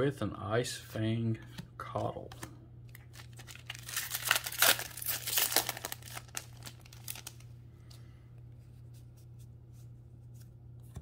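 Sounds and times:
wrapper crinkling: 2.9 - 7.5.

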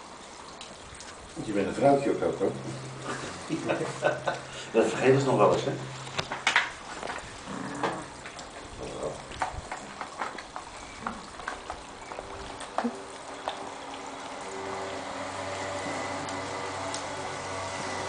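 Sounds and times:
low steady hum: 1.3 - 8.4.

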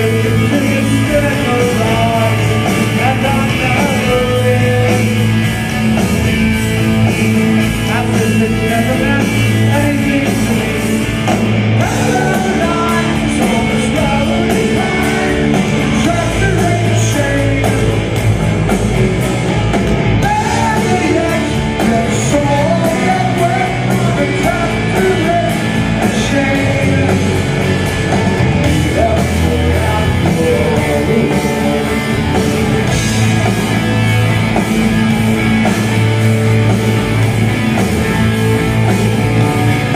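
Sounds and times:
man singing through pa: 0.0 - 5.1, 11.8 - 18.0, 20.2 - 27.5, 28.7 - 32.3
drum kit: 0.0 - 39.9
electric guitars: 0.0 - 39.9.

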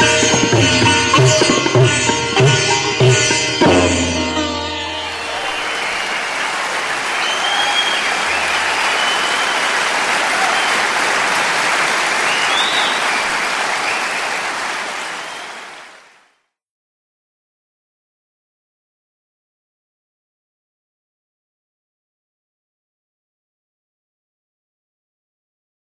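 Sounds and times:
audience applauding: 5.0 - 16.4.

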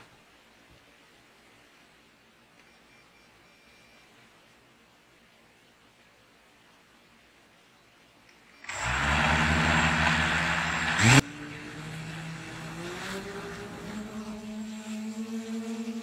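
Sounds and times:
quadcopter motors whirring: 8.6 - 16.0.

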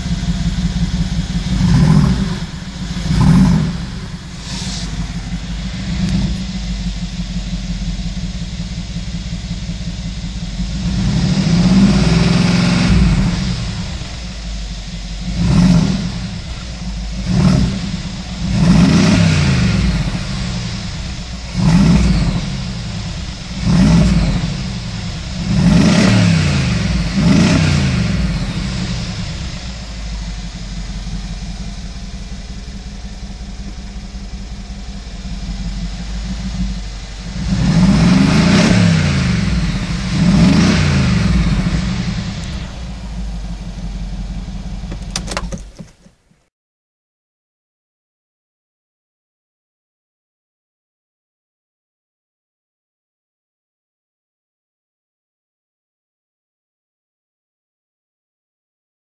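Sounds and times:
car engine revving: 0.0 - 46.0
car engine idling: 0.0 - 46.4.

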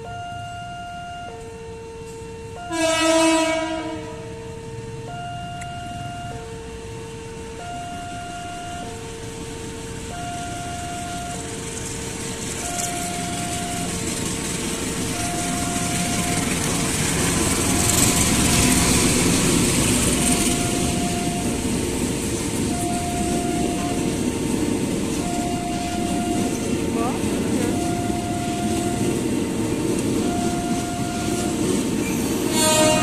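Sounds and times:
level crossing alarm two-tone: 0.0 - 11.8, 12.5 - 14.3, 15.0 - 21.8, 22.6 - 24.4, 25.1 - 29.4, 30.1 - 33.0
diesel train passing: 0.0 - 33.0.

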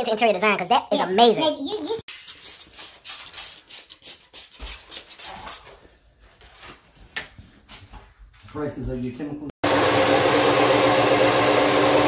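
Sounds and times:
music with fast shaker rhythm: 2.1 - 5.6.

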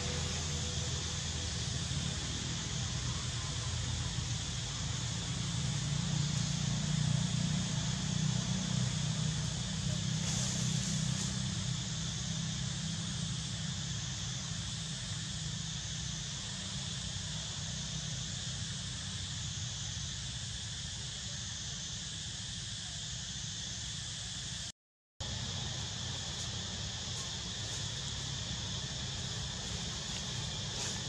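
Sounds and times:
insect chorus: 0.0 - 31.0.

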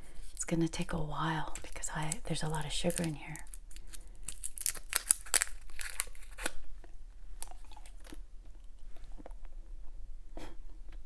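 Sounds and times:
chewing bubble gum: 2.9 - 9.5.

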